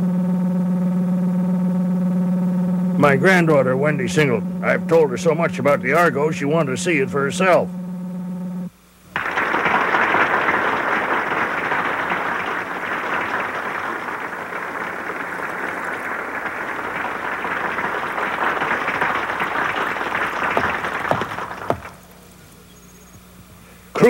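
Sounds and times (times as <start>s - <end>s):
large crowd applauding: 9.1s - 22.3s.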